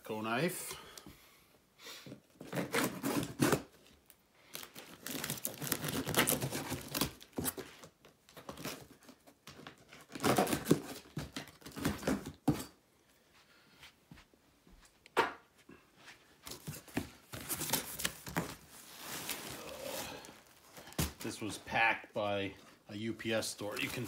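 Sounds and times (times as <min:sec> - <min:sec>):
packing tape ripping off box: 0:02.4 - 0:03.8, 0:04.5 - 0:07.6, 0:10.0 - 0:12.3.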